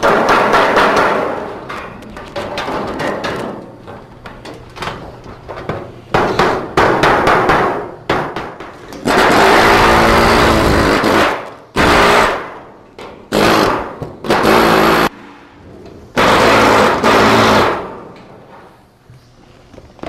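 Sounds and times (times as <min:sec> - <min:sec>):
pneumatic drill whining: 0:09.1 - 0:11.2.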